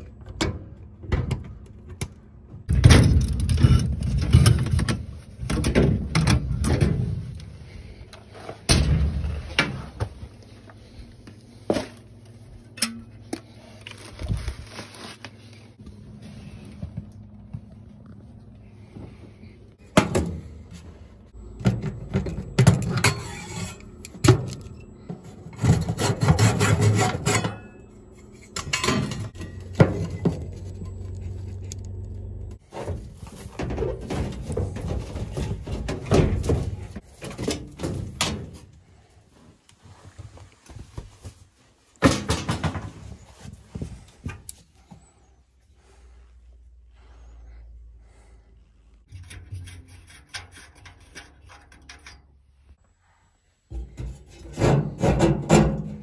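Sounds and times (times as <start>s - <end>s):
low steady hum: 0.0s - 42.0s
tools scraping and knocking on metal: 21.4s - 38.6s, 49.1s - 52.4s, 53.7s - 56.0s.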